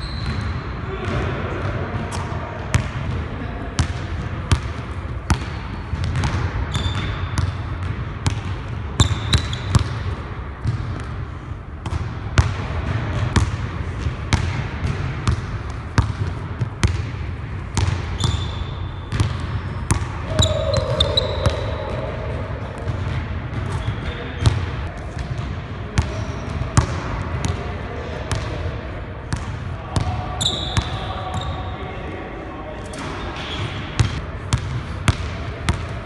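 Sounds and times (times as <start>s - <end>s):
sneaker squeaks: 0.0s - 0.8s, 5.3s - 7.5s, 9.0s - 9.9s, 18.1s - 22.1s, 26.0s - 26.8s, 30.4s - 31.7s, 32.8s - 34.2s.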